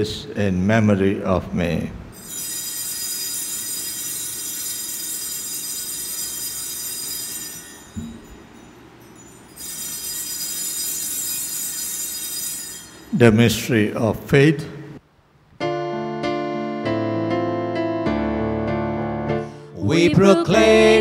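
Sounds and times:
small altar bells ringing: 0:02.2 - 0:13.8.

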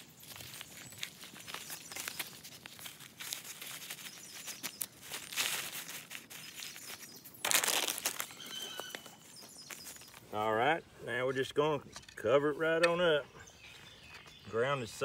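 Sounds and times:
fingers rustling in soil: 0:00.0 - 0:11.9
rustling ground cover: 0:00.0 - 0:15.0.

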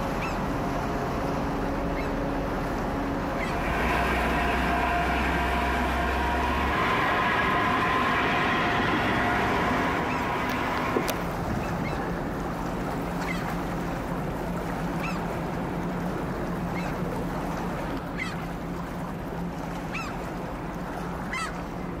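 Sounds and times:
boat engine humming: 0:00.0 - 0:22.0
water and wind noise: 0:00.0 - 0:22.0
bird calling: 0:00.1 - 0:00.5, 0:01.9 - 0:02.2, 0:03.4 - 0:06.6.

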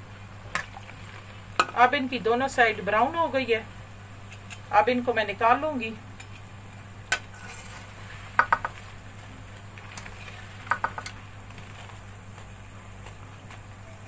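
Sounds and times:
fritters sizzling in oil: 0:00.0 - 0:13.6
wire skimmer scraping a pan: 0:07.3 - 0:09.0.

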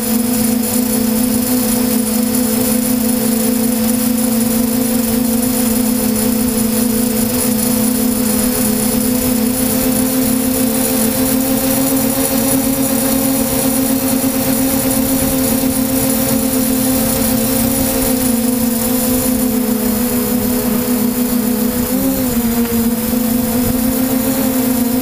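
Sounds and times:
drone motors and propellers humming: 0:00.0 - 0:25.0.

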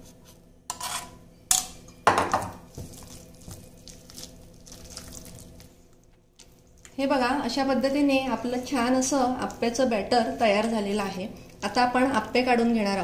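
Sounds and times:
spatula squelching in batter: 0:02.7 - 0:06.8.

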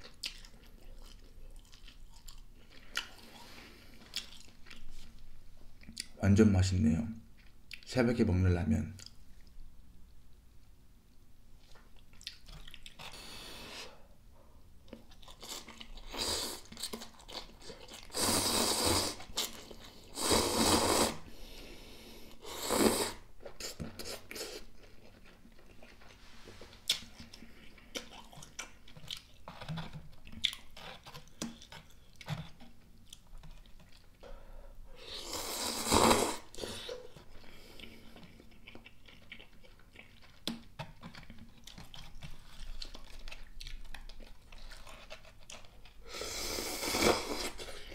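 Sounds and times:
wet chewing: 0:00.0 - 0:05.1, 0:11.6 - 0:13.2, 0:23.4 - 0:26.2, 0:26.8 - 0:34.2, 0:36.0 - 0:46.1
noodle slurping: 0:18.0 - 0:21.3, 0:22.3 - 0:24.7, 0:35.0 - 0:38.1.

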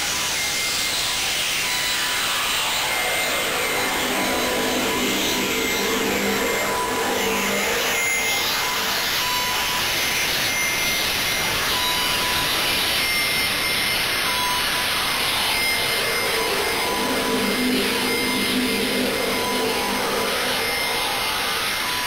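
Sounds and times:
electronic music with hissing noise: 0:01.9 - 0:09.9, 0:14.8 - 0:22.0.

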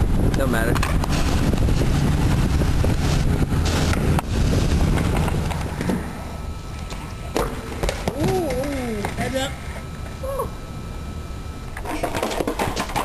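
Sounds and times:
wind on microphone: 0:00.0 - 0:07.3
skateboard wheels rolling on concrete: 0:00.0 - 0:10.2, 0:11.7 - 0:13.0
skateboard clack: 0:11.8 - 0:13.0.

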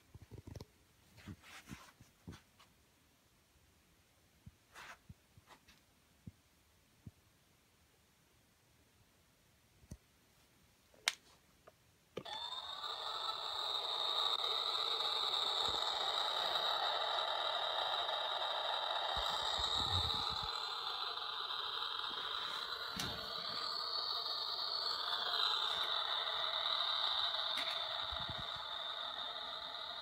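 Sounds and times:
toy vacuum whirring hum: 0:12.2 - 0:30.0.

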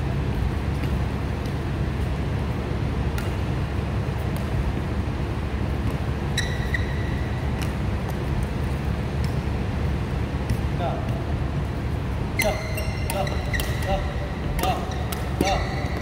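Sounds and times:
ventilation rumble: 0:00.0 - 0:16.0
short high squeak: 0:06.4 - 0:07.3, 0:12.4 - 0:13.9.

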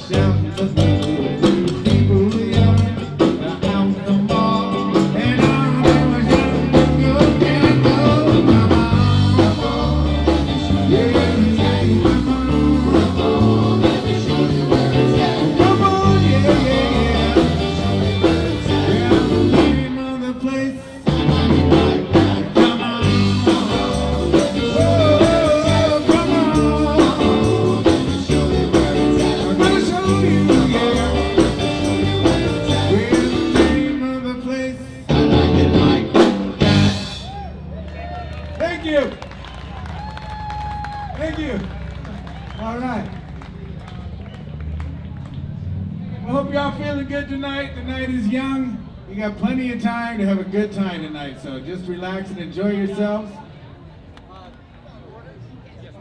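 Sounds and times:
electric guitar: 0:00.0 - 0:20.1, 0:20.8 - 0:34.1
drums: 0:00.0 - 0:20.2, 0:20.9 - 0:34.2, 0:35.0 - 0:48.3
keyboard: 0:00.0 - 0:54.0
bass: 0:00.0 - 0:56.0.

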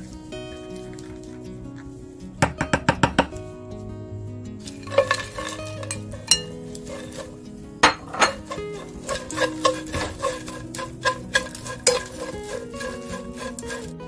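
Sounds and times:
anchovies rustling in dry pan: 0:00.0 - 0:02.4, 0:03.2 - 0:14.0
spatula knocking glass bowl: 0:02.4 - 0:03.3, 0:07.8 - 0:12.3.

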